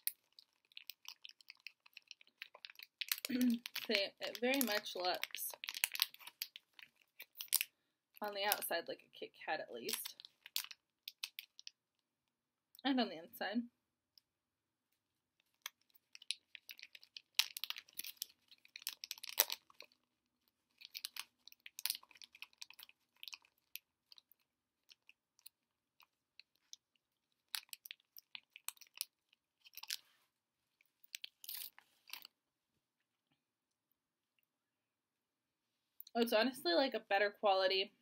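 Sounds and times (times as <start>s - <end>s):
crunching wafer bar: 0.0s - 3.9s, 15.6s - 20.0s, 20.6s - 30.0s.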